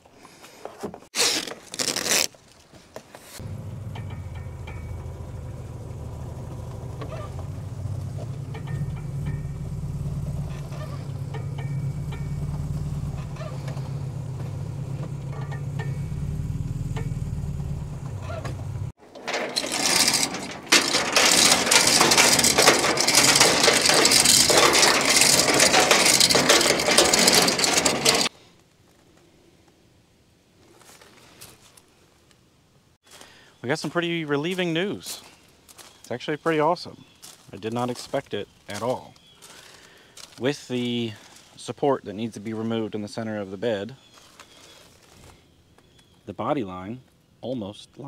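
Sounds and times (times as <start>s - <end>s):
engine idling: 3.4s - 28.3s.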